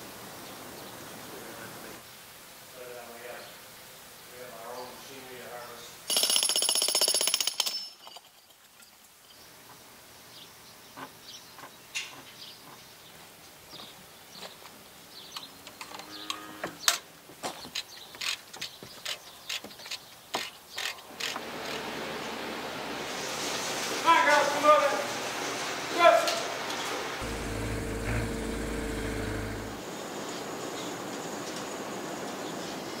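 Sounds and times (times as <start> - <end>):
loud mechanical burst: 27.2 - 29.8.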